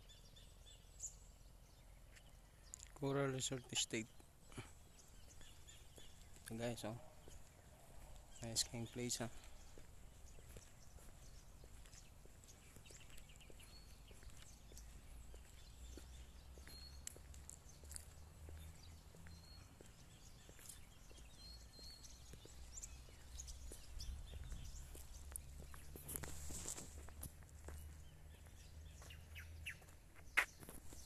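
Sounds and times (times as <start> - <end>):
bird chirps: 0.0 - 31.0
footsteps on pavement: 3.6 - 31.0
wind rumble on microphone: 23.8 - 24.8.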